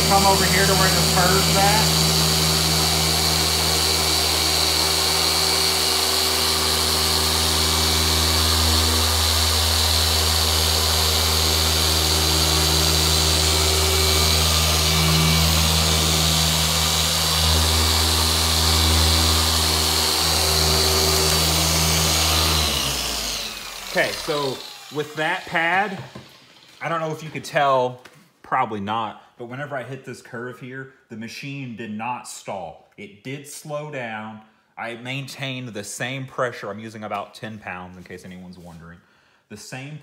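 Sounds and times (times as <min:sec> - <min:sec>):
polisher humming and whining: 0:00.0 - 0:26.8.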